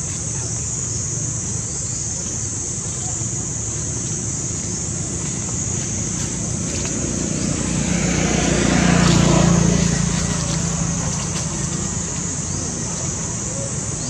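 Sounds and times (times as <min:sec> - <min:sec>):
vehicle engine passing by: 0:04.2 - 0:14.0.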